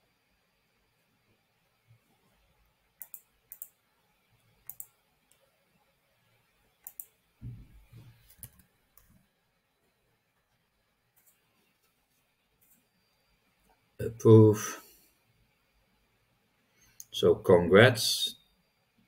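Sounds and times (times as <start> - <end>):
computer mouse clicks: 3.0 - 3.8, 4.6 - 5.4, 6.8 - 7.2, 8.2 - 9.2, 11.2 - 11.5, 12.6 - 12.9
soft low bump: 7.4 - 8.0.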